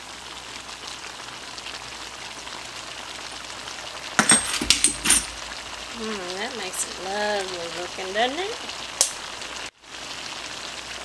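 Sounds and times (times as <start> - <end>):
stir fry sizzling in a wok: 0.0 - 11.0
loud sharp clatters: 4.2 - 5.7.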